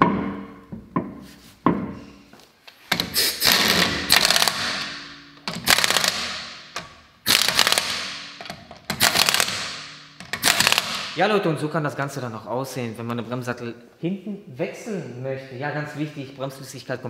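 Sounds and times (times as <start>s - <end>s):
impact wrench hammering: 2.8s - 11.2s
wheel knocking onto hub: 2.9s - 11.2s.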